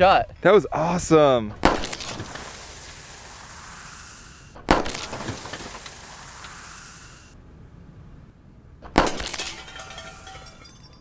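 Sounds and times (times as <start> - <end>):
steady hiss: 1.2 - 7.4
rifle shots with ringing tail: 1.6 - 2.6, 4.6 - 6.1, 8.8 - 10.7.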